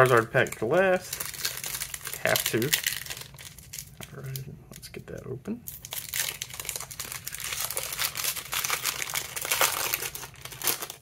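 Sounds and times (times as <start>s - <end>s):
foil wrapper tearing and crinkling: 0.0s - 4.4s, 5.7s - 11.0s.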